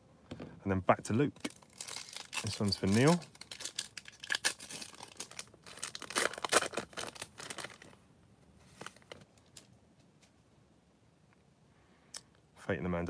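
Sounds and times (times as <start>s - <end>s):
foil wrapper tearing and crinkling: 1.4s - 8.0s.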